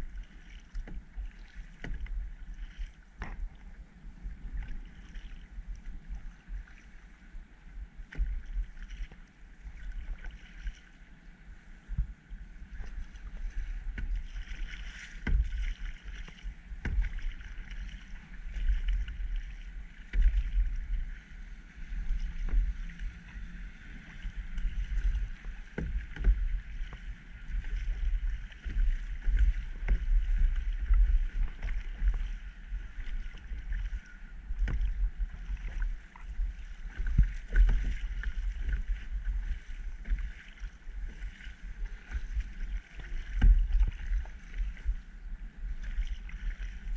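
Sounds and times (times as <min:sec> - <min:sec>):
paddle splashing in water: 0:00.0 - 0:46.9
low rumble: 0:11.9 - 0:46.9.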